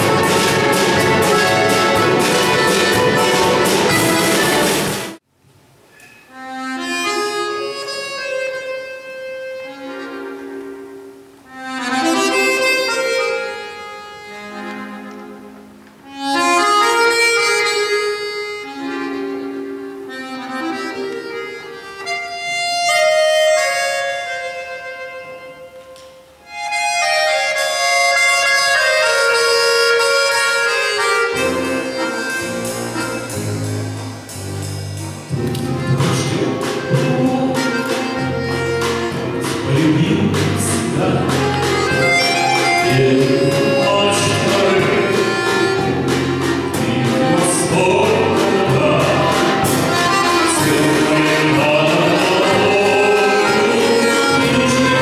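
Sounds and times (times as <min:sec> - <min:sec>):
accordion and harmonica melody: 0:00.0 - 0:05.2, 0:06.2 - 0:55.0
low bass notes: 0:00.0 - 0:05.2, 0:30.8 - 0:55.0.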